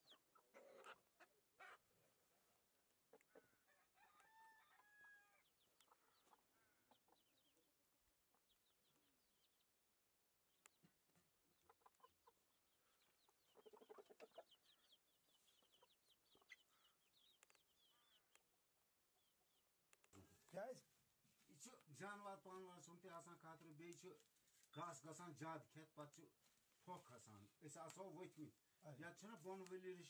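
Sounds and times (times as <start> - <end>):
chickens clucking: 0.0 - 3.7, 4.8 - 9.6, 10.6 - 18.3.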